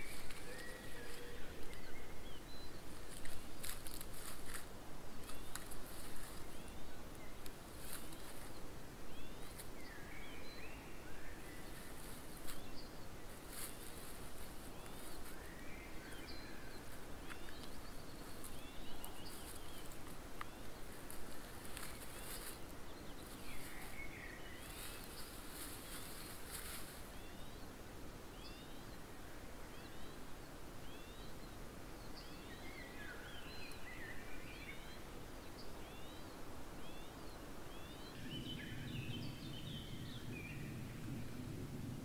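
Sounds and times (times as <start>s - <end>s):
faint crackles and rustles: 0.0s - 29.1s
songbird singing sliding notes: 0.0s - 29.1s, 29.7s - 41.2s.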